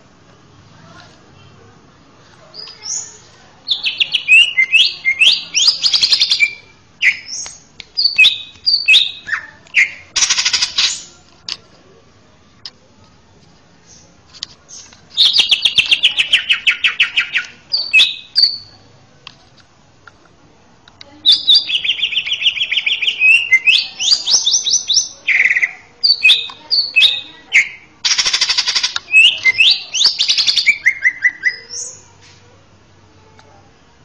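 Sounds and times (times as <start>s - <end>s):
bird singing trills: 2.6s - 11.2s, 14.7s - 18.8s, 21.2s - 32.1s.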